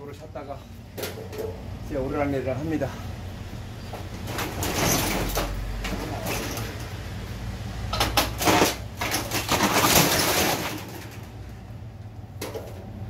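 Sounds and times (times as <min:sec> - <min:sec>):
metal shutter rattling: 0:04.0 - 0:07.0, 0:07.9 - 0:11.4.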